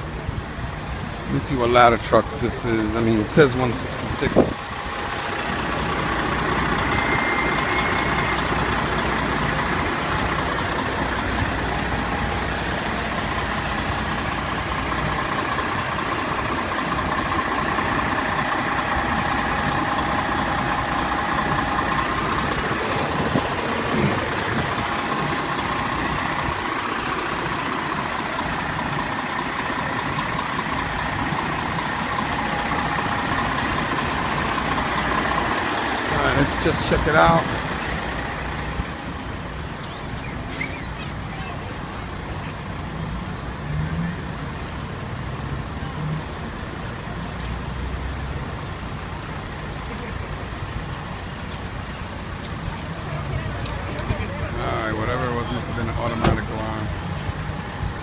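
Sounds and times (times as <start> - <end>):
diesel engine idling: 0.0 - 58.0
steady high whine: 4.2 - 39.3.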